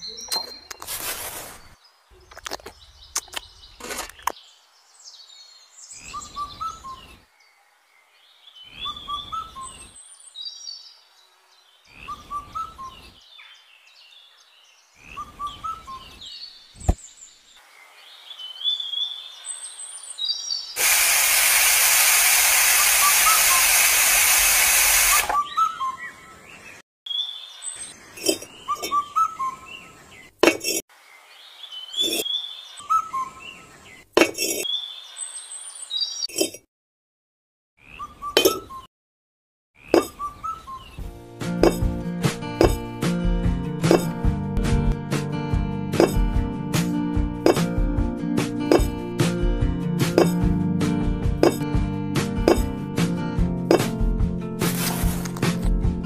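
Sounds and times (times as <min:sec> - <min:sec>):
birds chirping: 0:00.0 - 0:00.9, 0:01.5 - 0:20.8, 0:25.0 - 0:30.4, 0:31.0 - 0:36.4, 0:37.8 - 0:38.9, 0:39.8 - 0:41.1
loud even hiss: 0:20.8 - 0:25.4.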